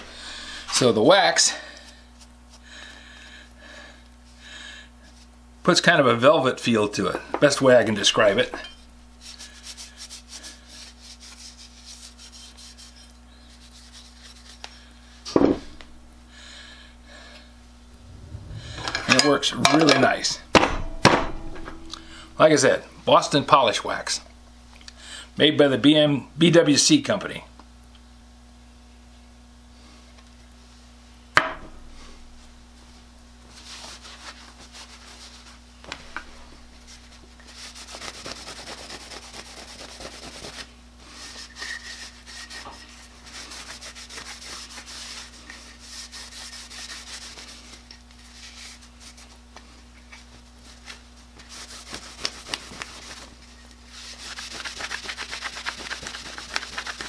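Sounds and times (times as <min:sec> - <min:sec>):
cloth rag scrubbing wood: 0:09.2 - 0:14.6, 0:33.5 - 0:35.6, 0:36.8 - 0:49.4, 0:50.3 - 0:57.0.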